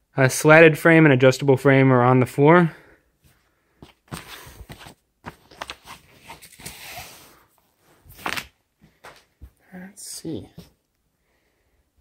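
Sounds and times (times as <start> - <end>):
paper booklet rustling: 3.8 - 7.2
hands scraping fabric cover: 4.0 - 7.5.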